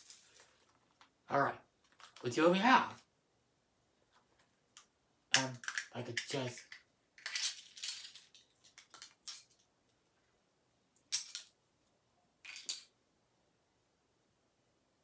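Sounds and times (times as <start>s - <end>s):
plastic rustling and clicking: 1.8s - 2.3s.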